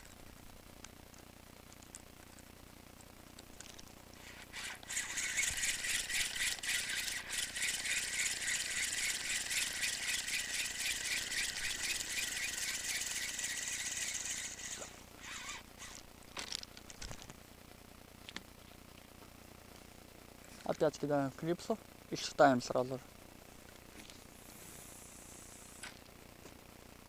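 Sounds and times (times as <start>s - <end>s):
fishing reel whirring and ticking: 4.2s - 16.0s.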